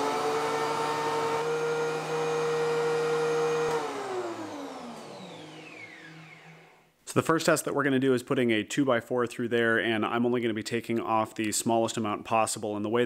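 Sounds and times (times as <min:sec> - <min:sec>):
thickness planer running: 0:00.0 - 0:06.9.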